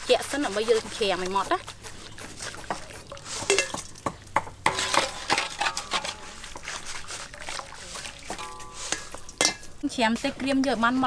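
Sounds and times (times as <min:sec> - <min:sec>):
chicken deep-frying in hot oil: 0:05.2 - 0:11.0
metal strainer clinking on wok: 0:08.3 - 0:09.8.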